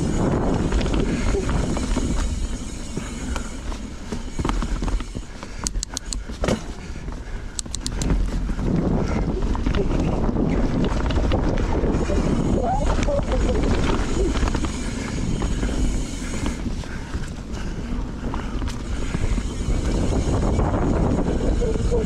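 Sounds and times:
bike rattles: 0.0 - 22.0
bike tyres rumbling on dirt: 0.0 - 22.0
quick sharp clicks: 7.5 - 8.1.

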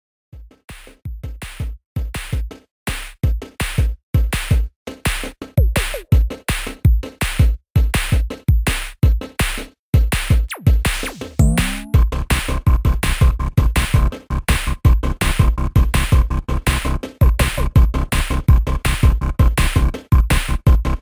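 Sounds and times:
drum machine beat: 0.4 - 21.0
electronic music: 10.5 - 12.1.

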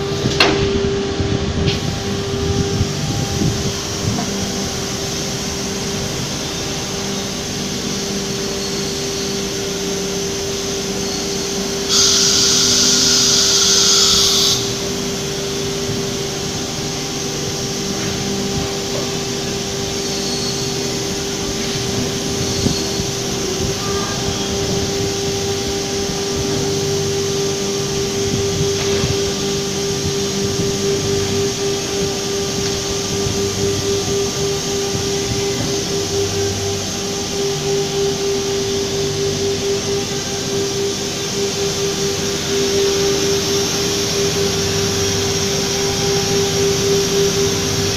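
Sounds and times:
cnc router humming: 0.0 - 47.9
steady tone: 0.0 - 47.9
loud hiss: 0.9 - 47.9.

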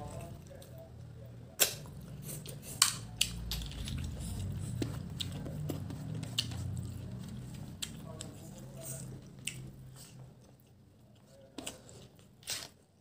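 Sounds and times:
chewing food: 0.0 - 12.8.

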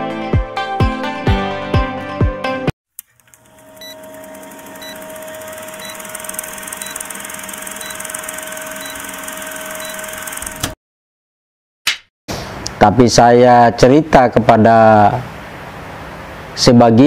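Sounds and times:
mechanical whir with low hum: 3.0 - 10.8.

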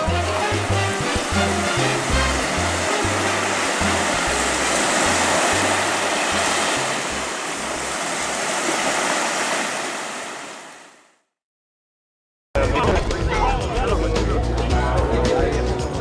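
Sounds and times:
waves breaking on a beach: 0.0 - 11.2.

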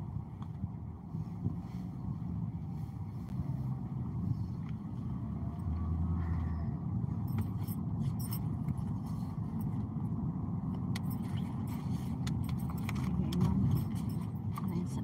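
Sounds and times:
road and engine rumble in car: 0.0 - 15.0
light clicks and jingles: 7.1 - 10.1, 10.7 - 15.0.

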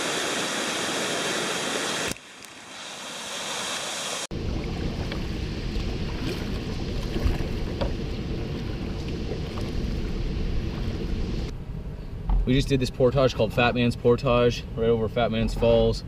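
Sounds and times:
water rushing from falls: 0.0 - 11.5
water washing along hull: 0.0 - 11.5
wind rumble on microphone: 4.3 - 12.8.

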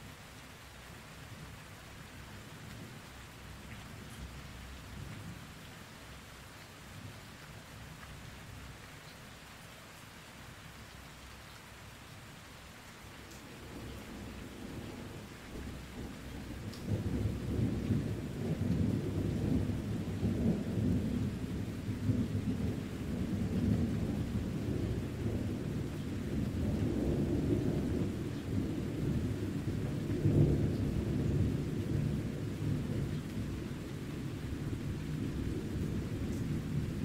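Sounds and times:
steady rain: 0.0 - 37.0
deep rumbling thunder: 13.6 - 37.0.

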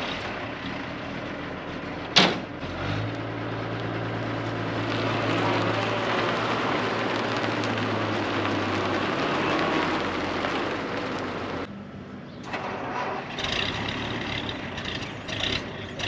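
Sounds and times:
half-track engine droning: 0.0 - 16.0
sharp metallic clunk: 2.2 - 2.5.

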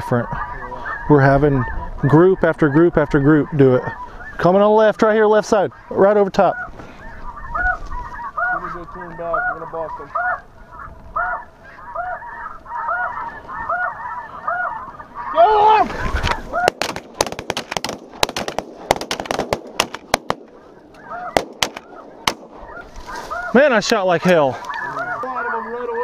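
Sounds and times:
geese honking: 0.0 - 26.0
shotgun shots: 16.6 - 20.6, 21.3 - 22.6.

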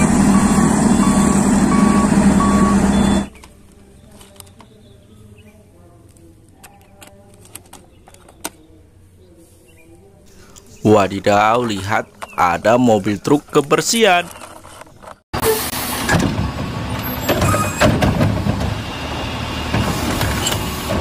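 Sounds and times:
diesel truck engine droning: 0.0 - 5.1, 15.4 - 21.0
short high beeps: 0.3 - 3.3
plastic toy trucks clicking: 6.6 - 8.6.

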